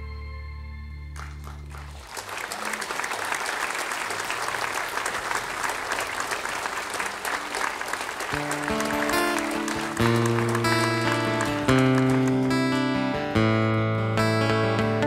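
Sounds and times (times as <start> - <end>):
audience applauding: 1.1 - 13.2.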